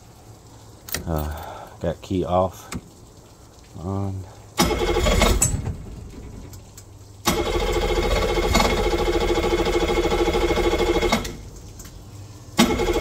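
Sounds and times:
outboard starter cranking: 4.6 - 6.6, 7.2 - 11.4, 12.6 - 13.0.

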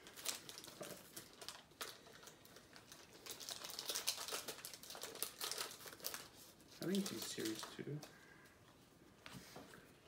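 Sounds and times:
foil wrapper crinkling: 0.0 - 8.1.

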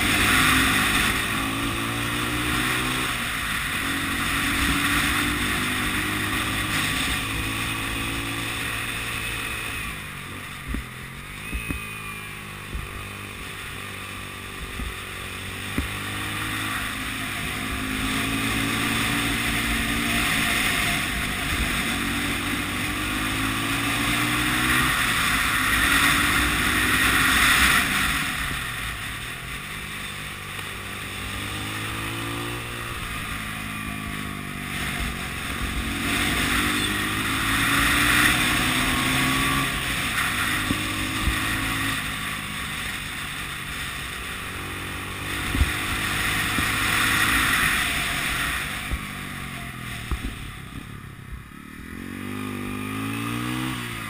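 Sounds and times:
motorcycle engine: 0.0 - 54.0.

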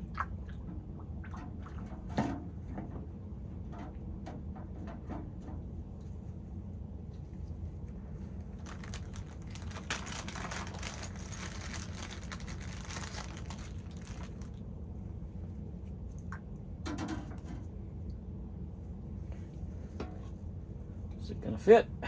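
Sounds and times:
steady low hum: 0.0 - 22.0
plastic bag crinkling: 8.5 - 14.6.

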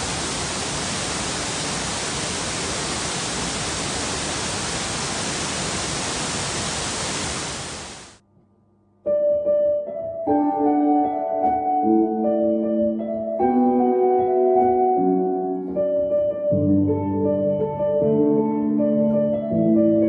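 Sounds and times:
waterfall rushing: 0.0 - 8.2.

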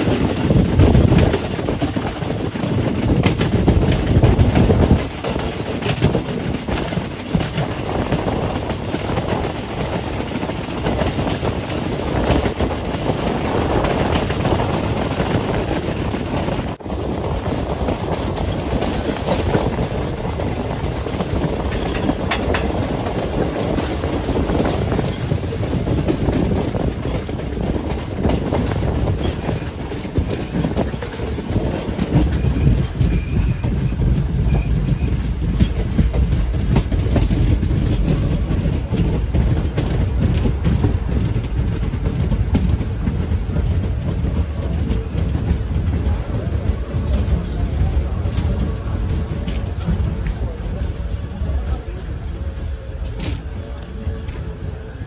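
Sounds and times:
train rumble: 0.0 - 55.0.

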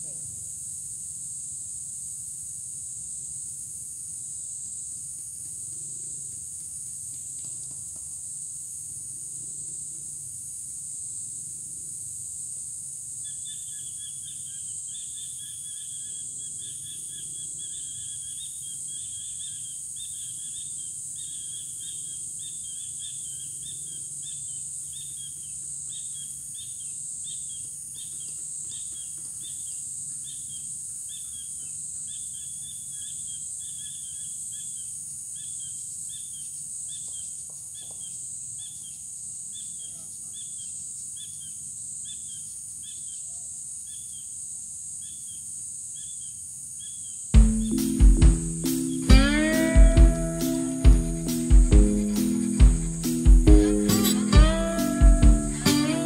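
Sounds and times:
insects chorus: 0.0 - 56.0
bird chirping: 13.2 - 44.3, 45.0 - 56.0.

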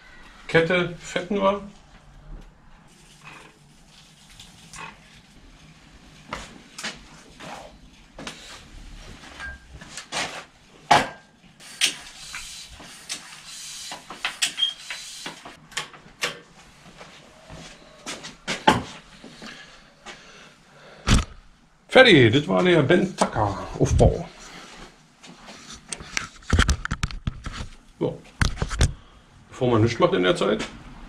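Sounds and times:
spray hissing: 11.6 - 15.6.

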